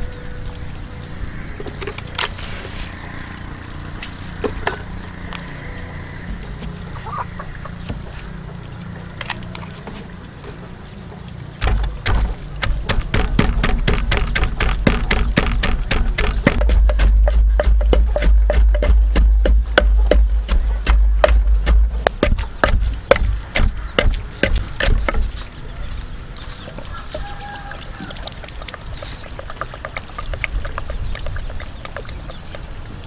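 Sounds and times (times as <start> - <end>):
pestle pounding in wooden mortar: 11.6 - 25.4, 28.0 - 32.6.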